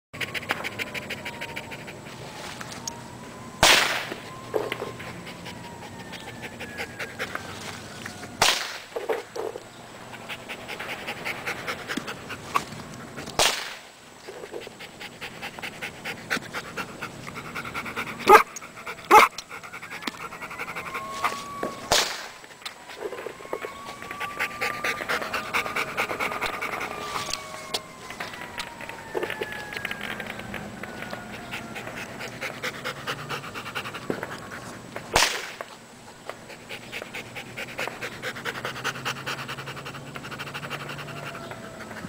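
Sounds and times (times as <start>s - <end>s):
dog panting: 0.2s - 2.9s, 4.3s - 7.9s, 9.0s - 13.4s, 14.3s - 21.9s, 22.6s - 35.1s, 36.0s - 42.0s
sharp cracks: 3.6s - 4.8s, 8.4s - 9.2s, 12.6s - 14.0s, 21.9s - 22.8s, 35.1s - 35.8s.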